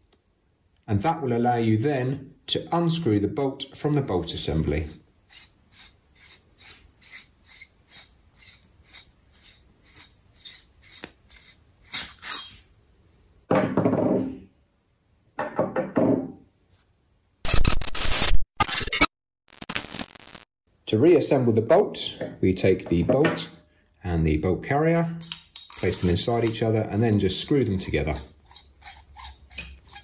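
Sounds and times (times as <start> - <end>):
metal parts sliding apart: 11.3 - 12.6.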